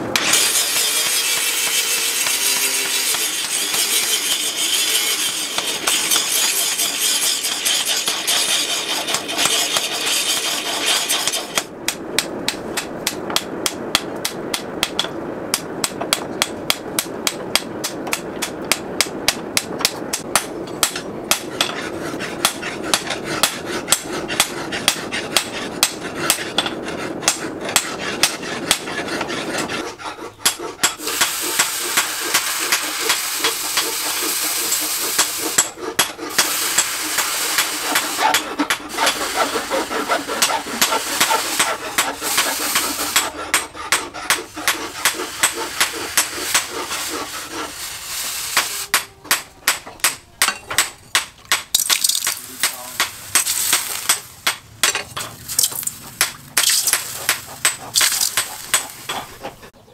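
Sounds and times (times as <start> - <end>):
forge fire rushing: 9.2 - 48.9, 51.9 - 59.7.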